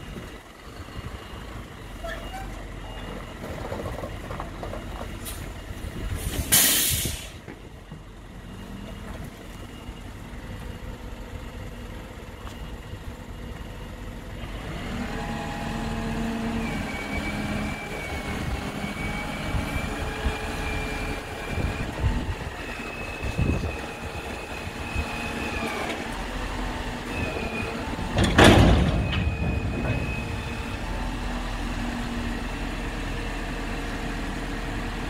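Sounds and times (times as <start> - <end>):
air brake hissing: 6.2 - 7.4.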